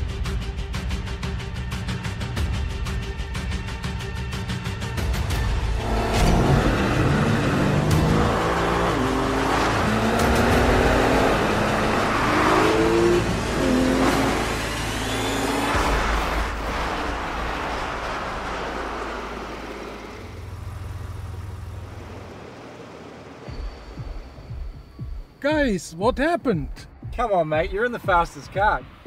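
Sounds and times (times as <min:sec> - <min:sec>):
car engines accelerating hard: 0:05.2 - 0:24.0.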